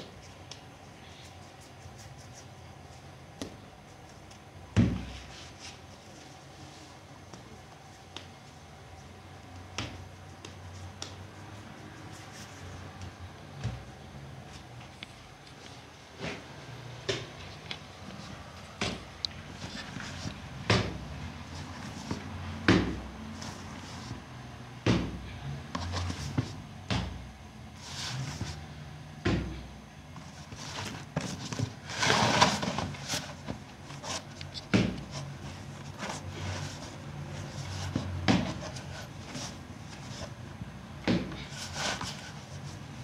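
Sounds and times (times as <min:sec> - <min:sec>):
dough rubbing and scraping: 0:09.8 - 0:13.8, 0:25.8 - 0:26.6, 0:27.8 - 0:28.7, 0:30.2 - 0:40.5, 0:41.1 - 0:43.0.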